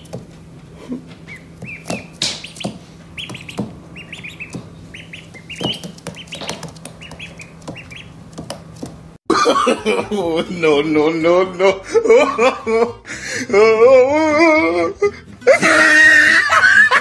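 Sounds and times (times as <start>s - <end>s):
ducklings peeping: 0.0s - 9.2s.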